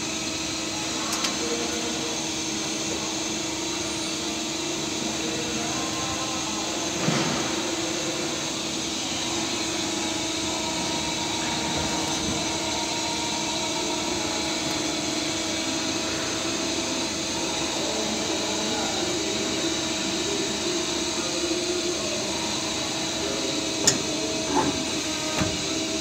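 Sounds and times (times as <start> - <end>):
lathe whirring with whine: 0.0 - 26.0.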